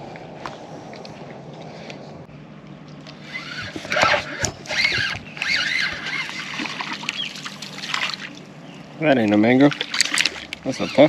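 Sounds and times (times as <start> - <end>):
fish splashing at water surface: 6.0 - 8.5, 9.6 - 10.6.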